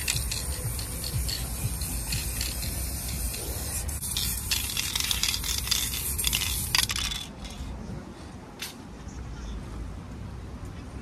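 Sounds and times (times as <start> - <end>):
spray can hissing: 0.0 - 7.3
spray can metallic rattling: 0.0 - 7.7.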